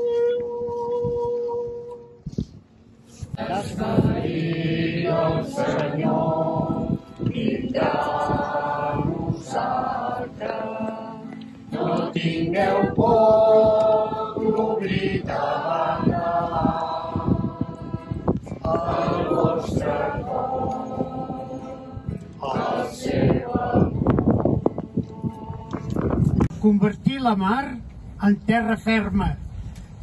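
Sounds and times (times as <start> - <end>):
group singing a hymn: 3.1 - 26.4.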